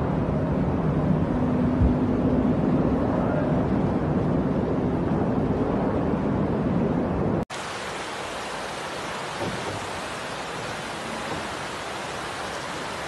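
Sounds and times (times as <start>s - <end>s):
floodwater rushing: 7.5s - 13.0s
hiss of water: 7.5s - 13.0s.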